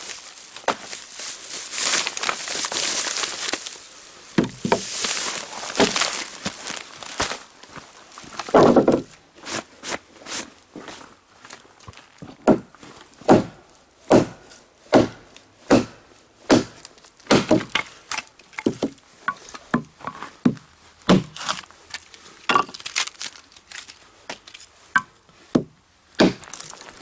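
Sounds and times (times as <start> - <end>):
hatchet chopping wood: 4.4 - 4.8, 12.4 - 12.7, 13.3 - 21.4, 25.0 - 26.6.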